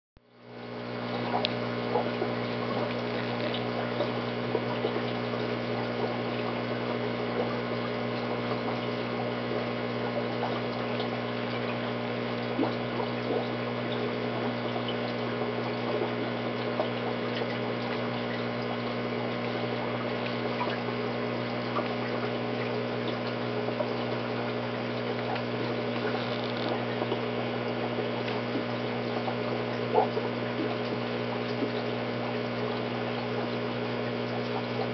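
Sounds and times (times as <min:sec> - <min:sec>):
aquarium filter hum: 0:00.2 - 0:34.9
faint ticks: 0:01.3 - 0:05.6, 0:24.9 - 0:29.3.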